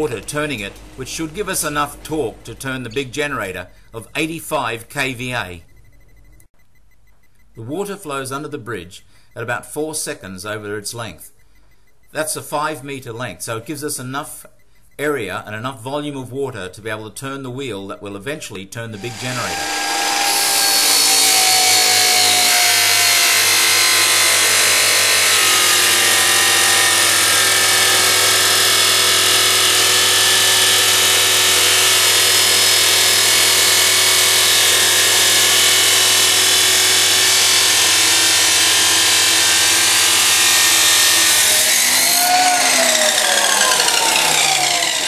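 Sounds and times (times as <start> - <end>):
chop saw grinding steel: 0.0 - 3.5, 19.0 - 45.0.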